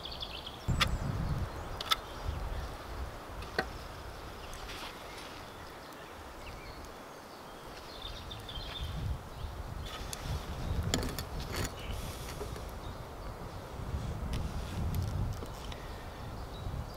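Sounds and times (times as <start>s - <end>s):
light taps and scrapes: 9.9s - 12.7s.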